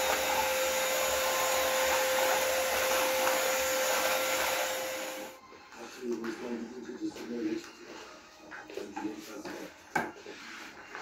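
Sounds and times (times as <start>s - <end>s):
vacuum cleaner running: 0.0s - 5.4s.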